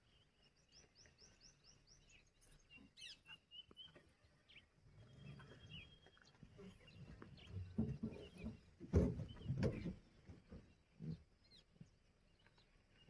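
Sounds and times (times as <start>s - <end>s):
bird chirps: 0.0s - 9.9s.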